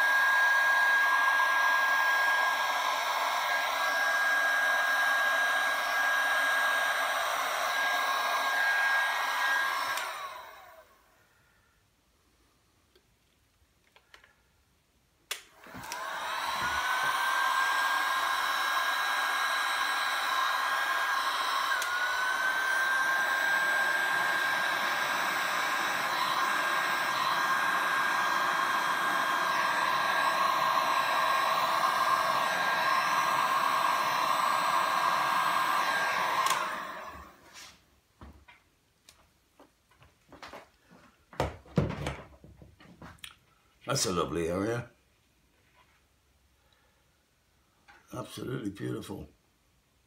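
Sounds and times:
heat gun motor whine: 0:00.0 - 0:10.9, 0:15.5 - 0:37.4.

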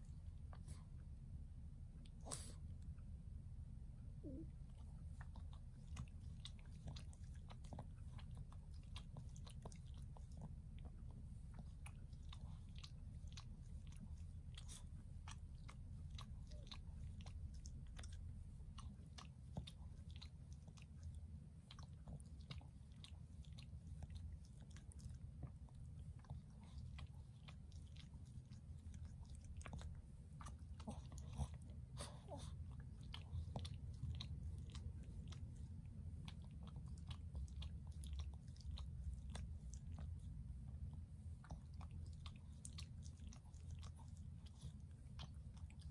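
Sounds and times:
dog licking and nibbling paw: 0:04.7 - 0:45.9.

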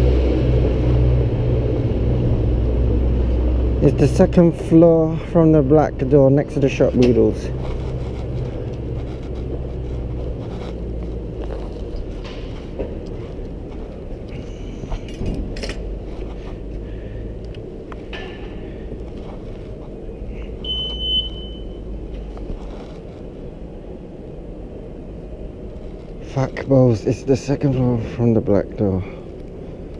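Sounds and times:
city street traffic rumble: 0:00.0 - 0:29.9
short high beep: 0:20.6 - 0:21.8.

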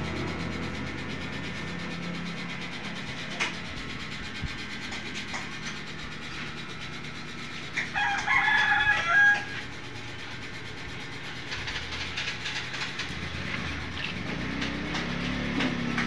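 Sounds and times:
rooster crowing: 0:07.8 - 0:09.8.

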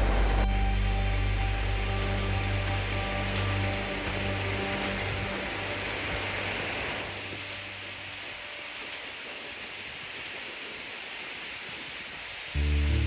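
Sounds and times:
background music: 0:00.0 - 0:08.8, 0:12.6 - 0:13.0
steady rushing noise: 0:00.0 - 0:10.1.

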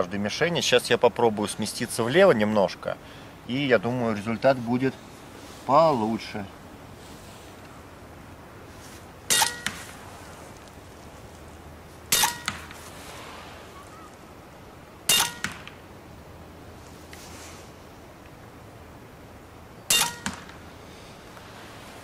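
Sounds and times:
air rifle shot cracks: 0:12.1 - 0:12.8, 0:15.1 - 0:15.9, 0:19.9 - 0:20.7.

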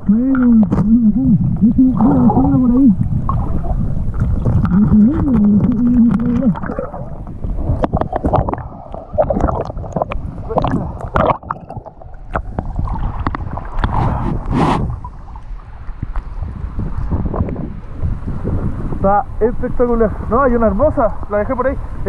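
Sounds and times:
muffled voice: 0:00.0 - 0:03.0, 0:04.7 - 0:06.6
water sloshing and splashing: 0:01.5 - 0:17.4.

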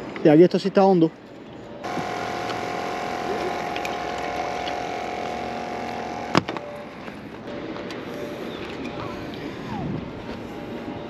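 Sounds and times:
air pump buzzing: 0:01.8 - 0:07.2.

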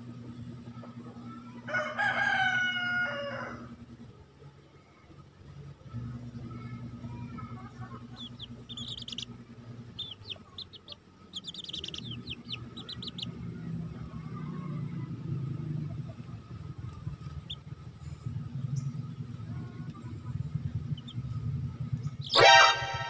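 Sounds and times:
low steady hum: 0:00.0 - 0:23.0
chicks peeping: 0:07.5 - 0:14.7, 0:15.7 - 0:23.0.

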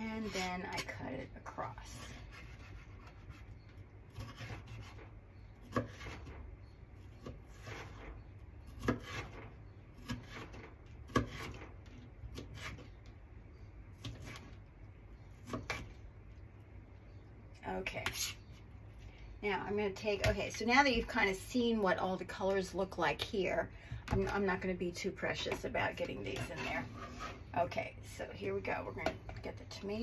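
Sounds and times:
soft rubbing and scraping: 0:00.0 - 0:01.0, 0:26.0 - 0:27.6.

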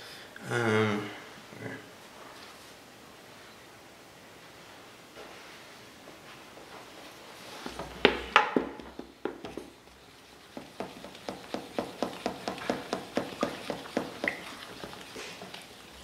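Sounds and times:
utensil knocking on steel bowl: 0:10.6 - 0:15.0.

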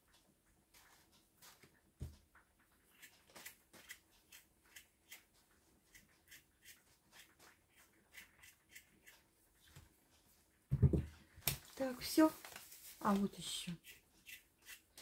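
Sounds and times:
knife scraping potato skin: 0:02.9 - 0:05.3, 0:05.9 - 0:09.3, 0:13.8 - 0:15.0
soft low thump: 0:10.7 - 0:11.1.

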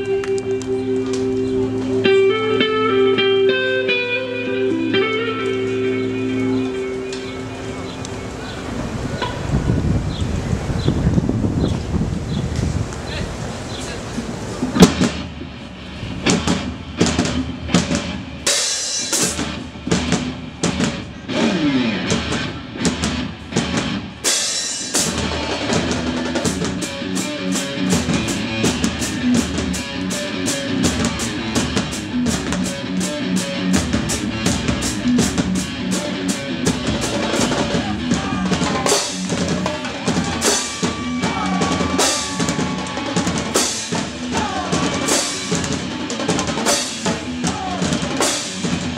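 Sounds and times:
bass drums: 0:14.6 - 0:48.9
marching snare drums: 0:33.8 - 0:48.9.

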